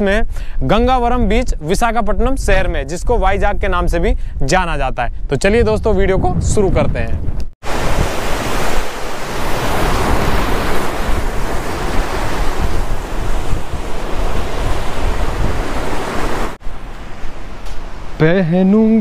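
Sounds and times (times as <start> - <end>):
wind buffeting microphone: 0.0 - 19.0
sea waves crashing over rocks: 7.6 - 18.8.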